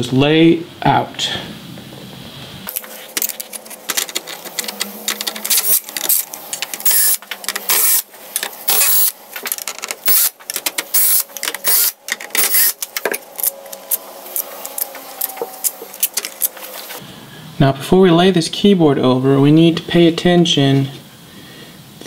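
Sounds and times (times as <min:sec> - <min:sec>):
cordless drill unscrewing screws: 0:02.7 - 0:14.0.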